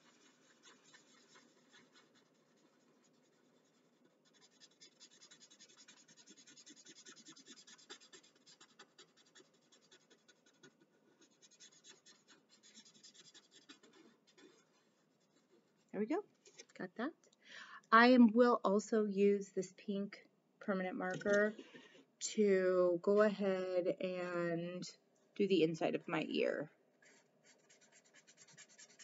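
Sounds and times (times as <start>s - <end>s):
marker scratching on paper: 0.0s - 15.5s, 27.0s - 29.0s.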